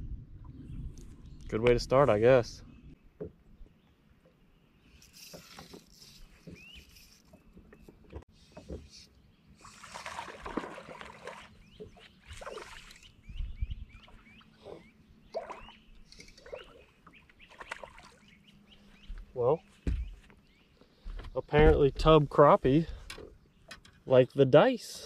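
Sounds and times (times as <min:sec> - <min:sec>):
water splashing around boat: 0:05.3 - 0:13.3, 0:14.0 - 0:18.9.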